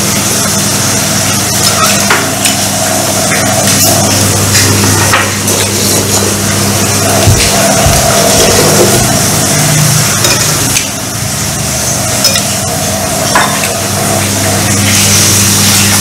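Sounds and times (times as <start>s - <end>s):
spoon clinking in ceramic bowls: 10.2s - 11.0s, 12.2s - 12.6s.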